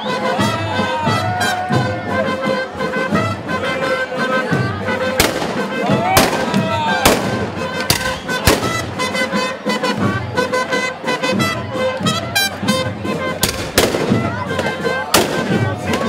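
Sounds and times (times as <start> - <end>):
crowd shouting and yelling: 0.0 - 16.0
loud blank gunshots: 5.2 - 8.8, 13.4 - 14.2, 15.1 - 15.6.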